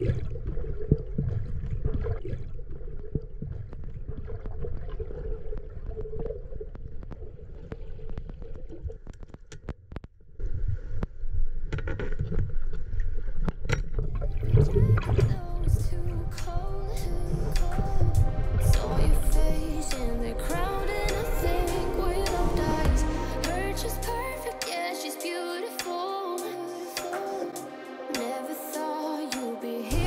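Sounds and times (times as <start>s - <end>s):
underwater low rumble: 0.0s - 9.2s, 10.3s - 24.4s
underwater clicks and crackles: 0.0s - 19.2s.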